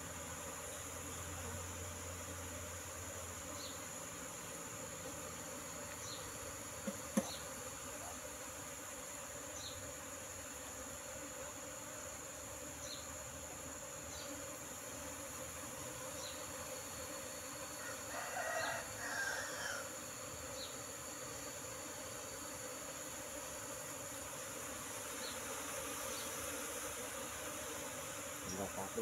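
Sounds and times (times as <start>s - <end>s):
bees buzzing: 0.0s - 29.0s
rooster crowing: 17.8s - 20.0s.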